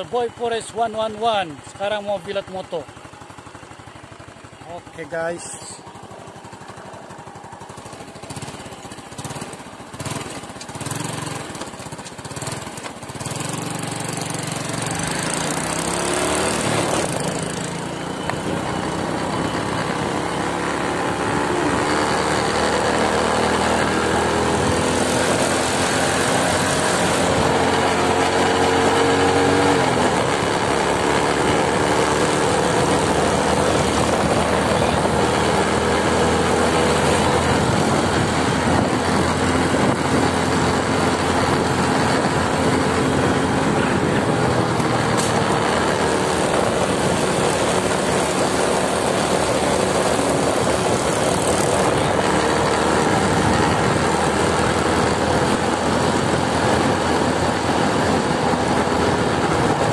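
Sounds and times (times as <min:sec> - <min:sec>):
motorcycle engine running: 0:00.0 - 0:59.9
wind on microphone: 0:32.7 - 0:48.6.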